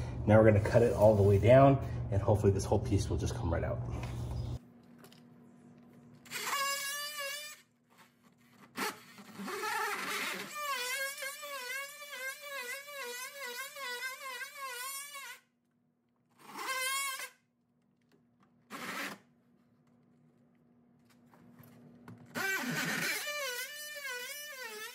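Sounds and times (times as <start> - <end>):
oscillating tool cutting drywall: 6.2 - 15.5, 16.3 - 17.4, 18.7 - 19.2, 22.3 - 24.9.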